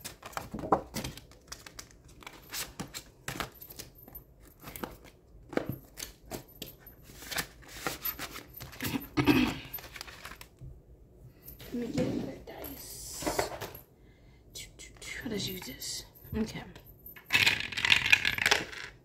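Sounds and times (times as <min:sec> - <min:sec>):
paper bills and plastic rustling: 0:00.0 - 0:10.6.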